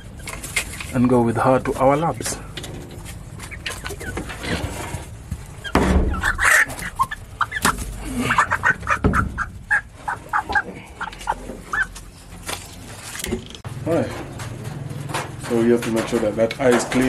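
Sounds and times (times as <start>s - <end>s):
hens clucking: 0.0s - 13.0s.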